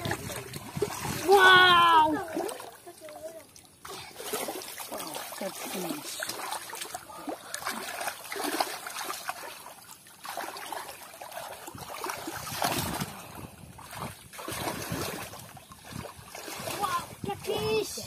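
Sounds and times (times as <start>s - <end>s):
hands splashing in muddy water: 3.8s - 17.1s.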